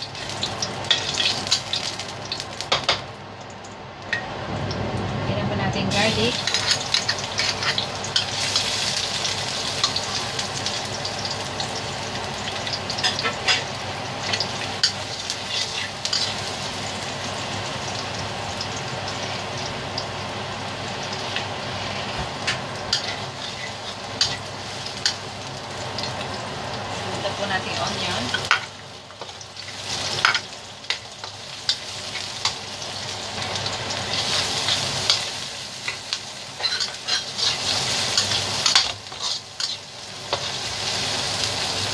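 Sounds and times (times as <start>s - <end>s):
garlic sizzling in hot oil: 0.0s - 5.1s, 5.8s - 41.9s
metal ladle scraping a wok: 6.4s - 8.5s, 36.6s - 40.6s.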